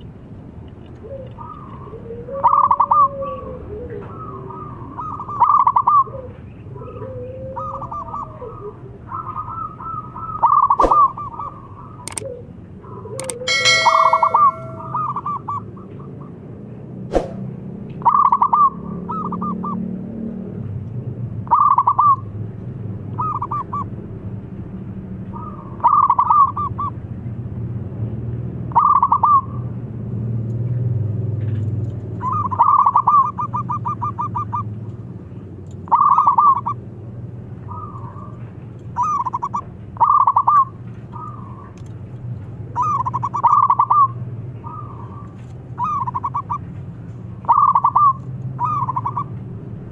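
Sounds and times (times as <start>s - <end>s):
dove cooing: 1.0s - 15.3s, 32.2s - 34.7s, 35.9s - 36.8s, 39.0s - 41.7s, 42.8s - 46.6s, 47.4s - 49.3s
sharp click: 12.1s - 12.3s, 13.2s - 14.6s
low steady hum: 13.2s - 15.2s.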